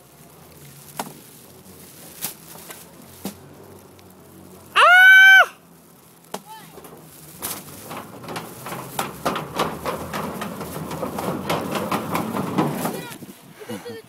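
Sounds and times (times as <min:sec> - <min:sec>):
scooter wheels rolling: 0:00.0 - 0:14.0
scooter clicks and clacks: 0:06.4 - 0:13.3.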